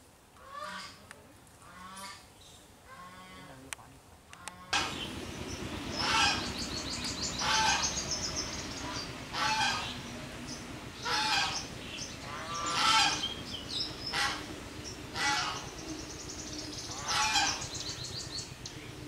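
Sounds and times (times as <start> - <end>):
geese honking: 4.4 - 18.0.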